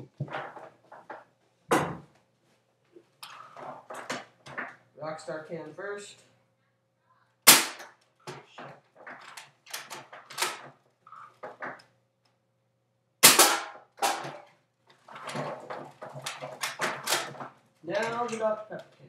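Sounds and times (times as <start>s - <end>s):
loud sharp blaster shot: 7.5s - 7.8s, 13.2s - 13.7s.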